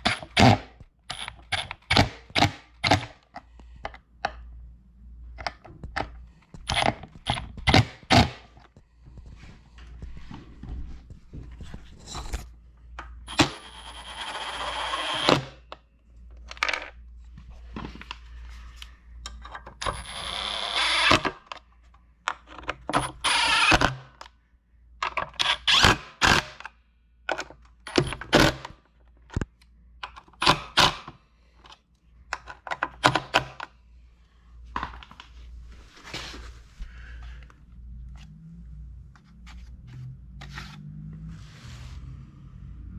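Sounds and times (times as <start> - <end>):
cordless drill running: 13.3 - 15.5, 19.8 - 21.2, 23.2 - 23.8.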